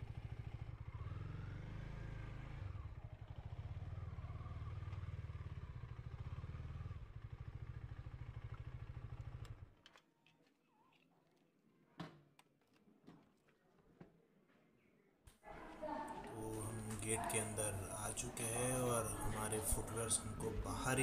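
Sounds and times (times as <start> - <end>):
vehicle engine running: 0.0 - 9.7, 16.3 - 21.0.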